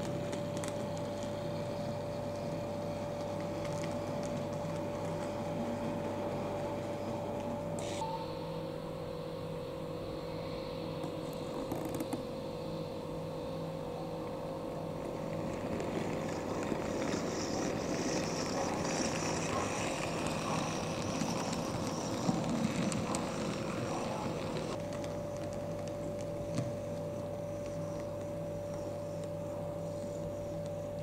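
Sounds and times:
wheels rumbling on rails: 0:00.0 - 0:07.8, 0:14.7 - 0:26.5.

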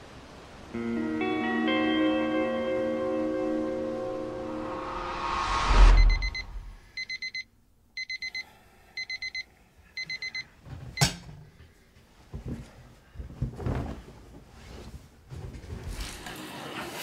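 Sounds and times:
alarm clock beeping: 0:05.8 - 0:07.4, 0:08.0 - 0:08.4, 0:09.0 - 0:10.5
rustle of bedclothes: 0:11.6 - 0:17.0.

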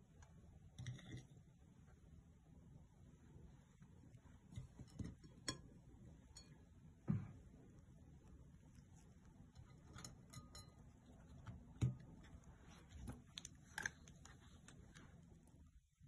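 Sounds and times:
food clicking and tapping on a plate: 0:04.6 - 0:05.7.

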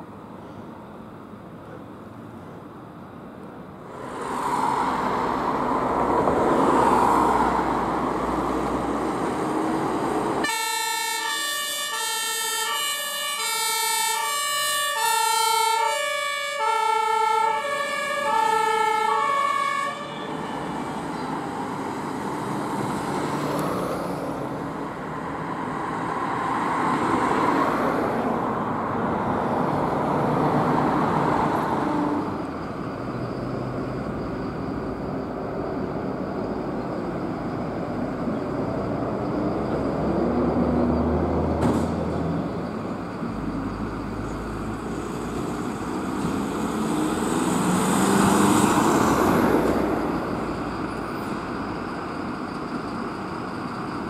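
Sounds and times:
passing traffic: 0:00.0 - 0:54.0
two-tone emergency siren: 0:10.4 - 0:21.7.

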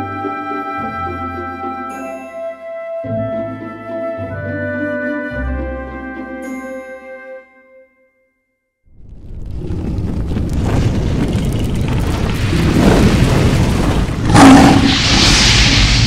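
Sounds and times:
deep rumbling boom and fire: 0:08.9 - 0:16.0.

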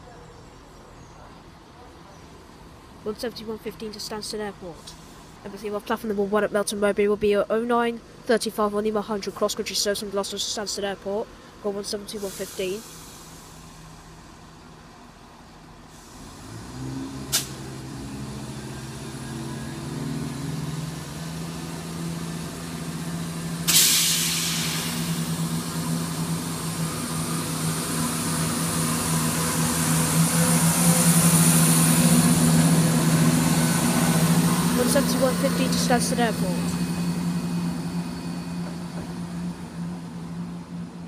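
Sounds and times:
diesel train engine drone: 0:00.0 - 0:41.0
air hiss burst: 0:12.2 - 0:13.8, 0:23.6 - 0:25.4.

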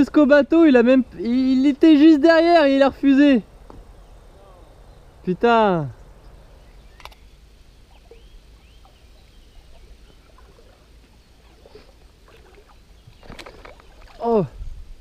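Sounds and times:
low river rumble: 0:00.0 - 0:15.0
faint bird chirps: 0:03.6 - 0:14.4
sharp click: 0:07.0 - 0:07.3.

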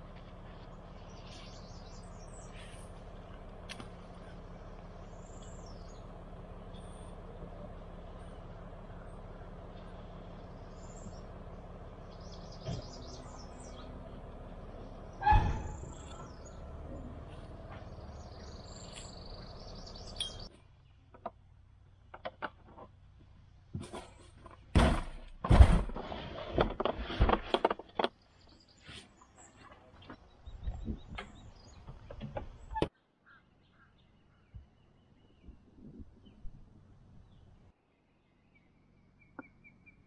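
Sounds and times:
birds chirping: 0:00.0 - 0:21.2, 0:28.0 - 0:40.0
steady low hum: 0:00.0 - 0:22.1
thump: 0:15.2 - 0:15.8, 0:24.7 - 0:26.0.

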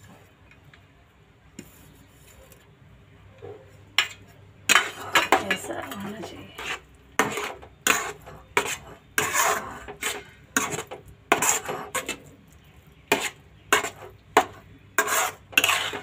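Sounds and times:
spatula scraping a pan: 0:04.0 - 0:16.0.

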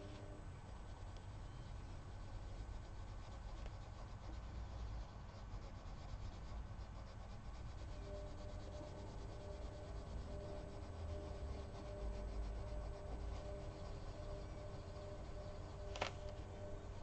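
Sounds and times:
low steady hum: 0:00.0 - 0:17.0
pencil scratching on paper: 0:00.0 - 0:17.0.

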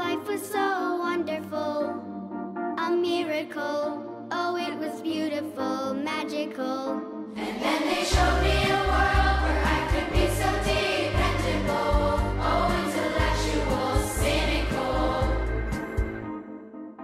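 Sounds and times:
choral singing: 0:07.3 - 0:16.2.

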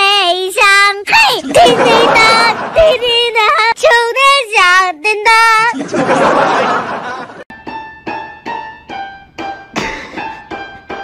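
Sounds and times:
high sung voice with vibrato: 0:00.0 - 0:05.8.

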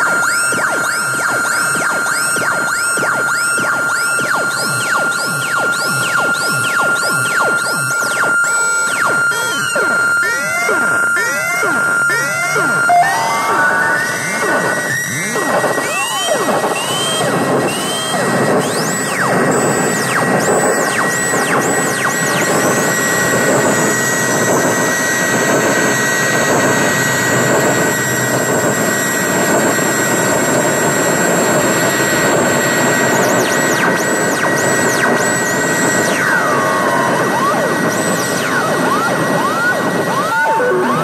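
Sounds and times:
harsh noise wall: 0:00.0 - 0:41.0
steady high whine: 0:04.8 - 0:41.0
stuttering high tone: 0:12.6 - 0:15.3, 0:39.5 - 0:41.0
falling electronic glides: 0:12.8 - 0:15.1.

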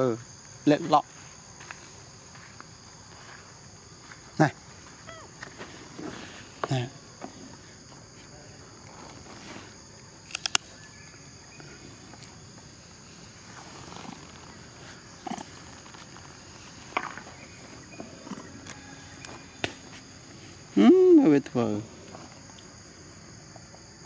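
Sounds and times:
insect chorus: 0:00.0 - 0:24.0
sharp clicks: 0:10.2 - 0:10.7.

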